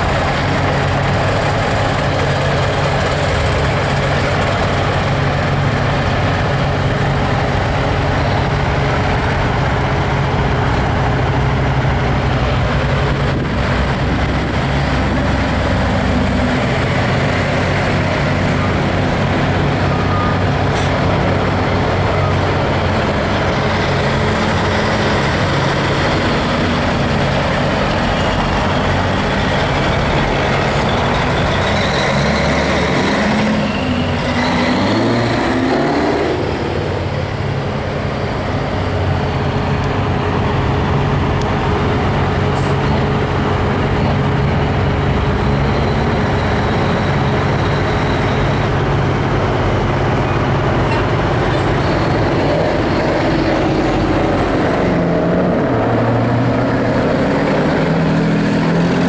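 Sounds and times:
truck diesel engines droning: 0.0s - 59.0s.

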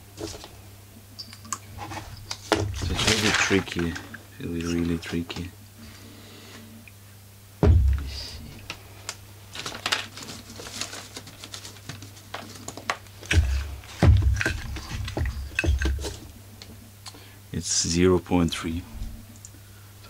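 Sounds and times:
dull thumps: 7.6s - 8.5s, 13.2s - 16.3s
clicks and rattles of chainsaw parts: 12.4s - 16.2s.

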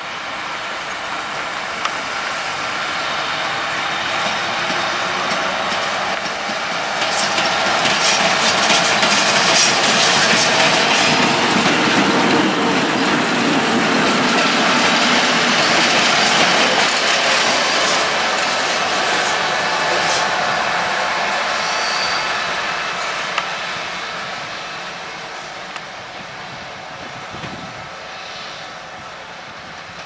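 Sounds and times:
wheel squeals: 21.5s - 22.5s.

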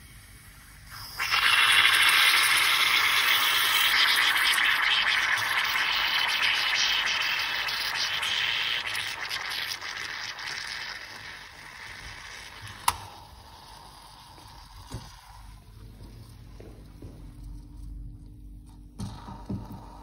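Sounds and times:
moka pot hissing and sputtering: 0.0s - 15.8s.

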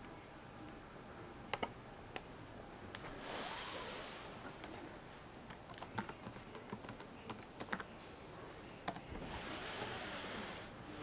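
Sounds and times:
soft rushing hiss: 2.3s - 5.5s, 7.9s - 11.0s.

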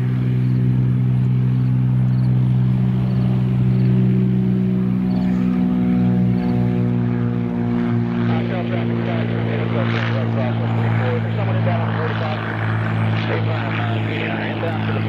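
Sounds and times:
propeller plane engine drone: 0.0s - 15.0s.

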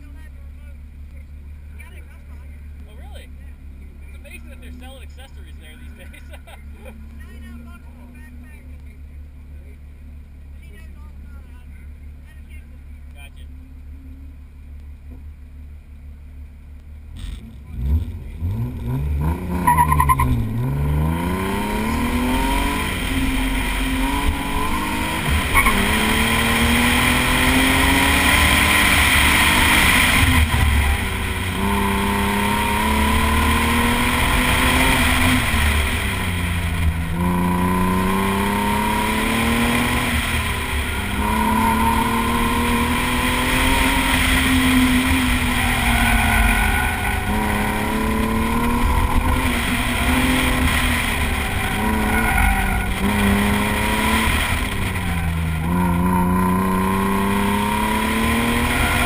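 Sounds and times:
car engine revving: 12.7s - 59.0s.

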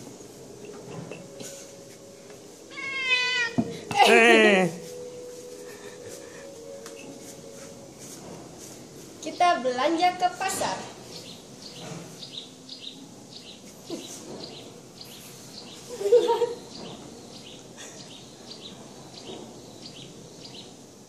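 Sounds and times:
bird chirping: 9.2s - 20.8s.

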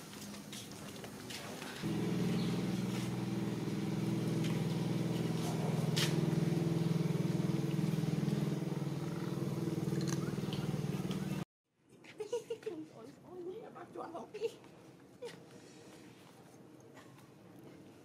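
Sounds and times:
low engine hum: 1.8s - 11.5s.

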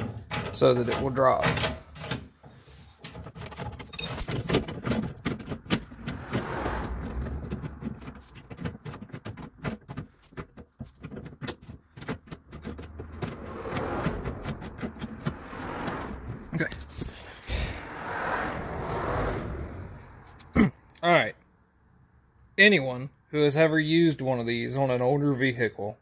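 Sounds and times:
winch clicking and rattling: 6.9s - 13.4s.

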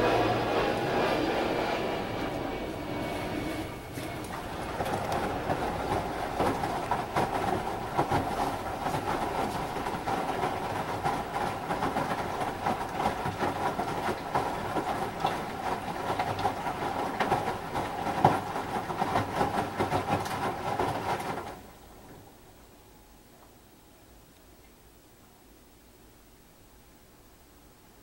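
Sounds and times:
washing machine drum tumbling: 0.0s - 21.7s
water sloshing and splashing: 0.0s - 22.5s.

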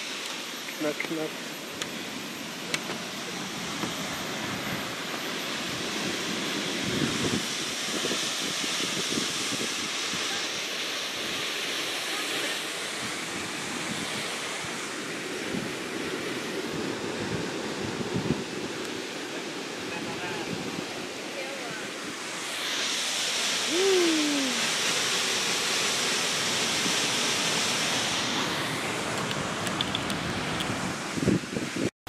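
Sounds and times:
waterfall rushing: 0.0s - 31.8s
wind buffeting microphone: 5.7s - 10.2s, 13.0s - 18.8s, 19.8s - 21.2s, 28.9s - 31.9s.

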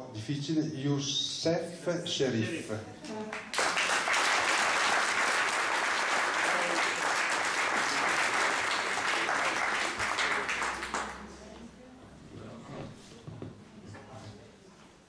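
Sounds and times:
audience applauding: 3.3s - 11.3s.

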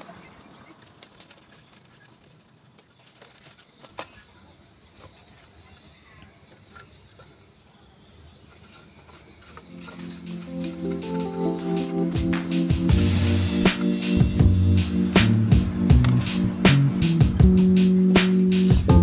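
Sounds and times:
brush scrubbing plastic: 8.5s - 14.0s
background music: 9.8s - 19.0s.

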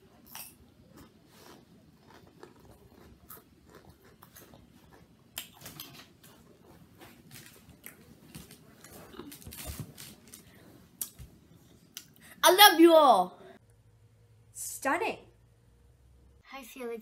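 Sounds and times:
chewing crunchy chips: 0.2s - 10.6s.

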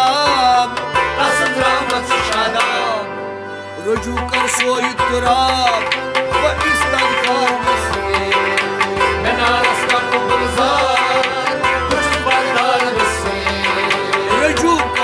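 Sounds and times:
men singing: 0.0s - 3.2s, 3.8s - 15.0s
harmonium chords: 0.0s - 15.0s
drum beat: 4.0s - 15.0s
plucked rabab: 4.0s - 15.0s.

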